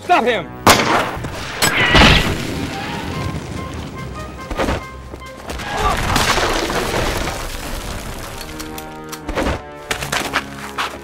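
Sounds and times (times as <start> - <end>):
action film score: 0.0 - 11.0
sharp impact: 0.7 - 2.9.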